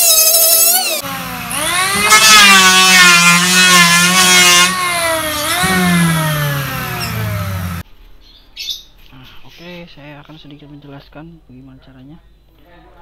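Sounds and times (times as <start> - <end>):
electric planer cutting wood: 0.4 - 7.8.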